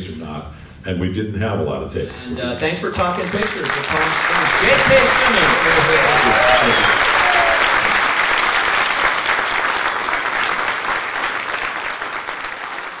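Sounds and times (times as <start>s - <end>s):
audience applauding: 2.1s - 13.0s.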